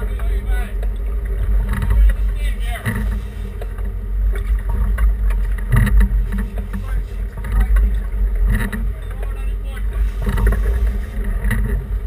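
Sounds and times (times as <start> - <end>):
boat engine rumble: 0.0 - 12.0
crew voices: 6.4 - 11.8.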